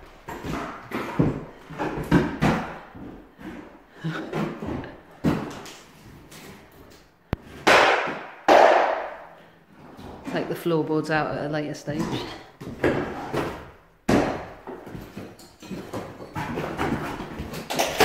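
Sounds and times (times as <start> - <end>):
wood knocks and crashes: 7.4 - 9.2, 12.6 - 18.0.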